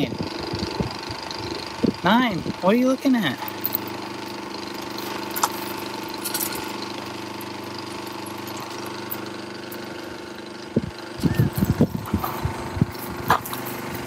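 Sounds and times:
motor humming: 0.0 - 14.0.

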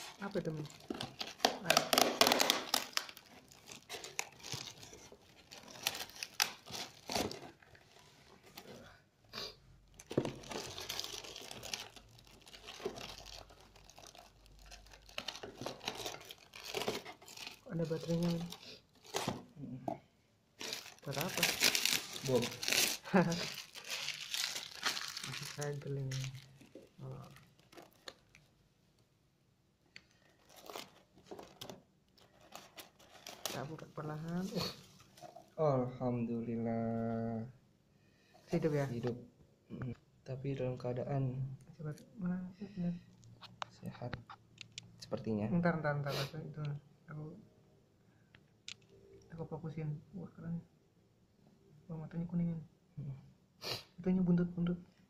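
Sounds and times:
plastic wrap crinkling: 0.0 - 8.6, 9.9 - 19.5, 20.6 - 28.6, 30.1 - 35.5
basket rustling: 20.6 - 28.2.

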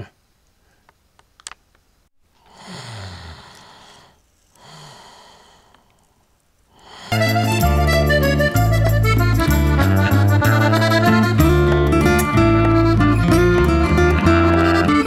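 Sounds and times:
person sighing: 2.4 - 6.0, 6.7 - 7.3
faint clicks: 5.6 - 6.7.

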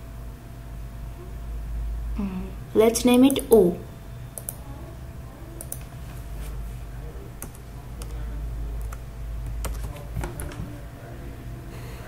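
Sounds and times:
low steady hum: 0.0 - 12.0
keyboard keystrokes: 8.8 - 10.7.

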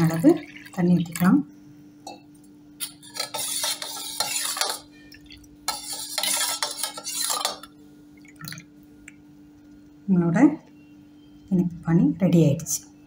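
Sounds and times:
spoon scraping metal bowl: 2.8 - 5.0, 5.7 - 7.7.

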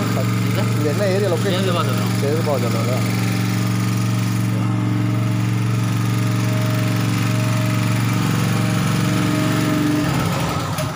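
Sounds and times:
generator engine running: 0.0 - 10.9.

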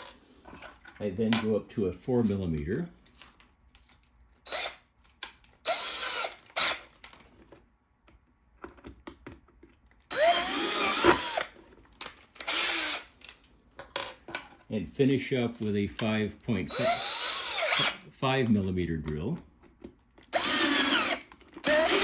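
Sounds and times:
cordless drill boring plastic: 4.5 - 4.8, 5.6 - 7.0, 10.1 - 11.5, 12.4 - 13.1, 16.7 - 18.0, 20.2 - 22.0.

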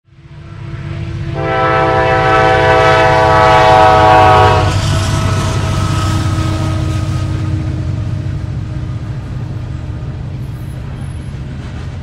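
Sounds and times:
locomotive engines rumbling: 0.2 - 12.0
locomotive air horn chord: 0.3 - 8.3.

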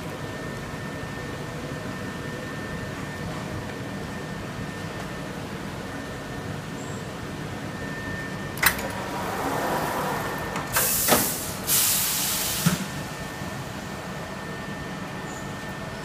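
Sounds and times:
steady machine hum: 0.0 - 16.0
pneumatic press clunks: 8.6 - 13.0
compressed air hiss: 10.7 - 12.9.

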